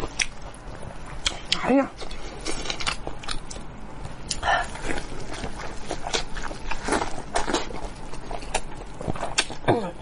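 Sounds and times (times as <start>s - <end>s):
wet chewing and lip-smacking: 0.0s - 9.7s.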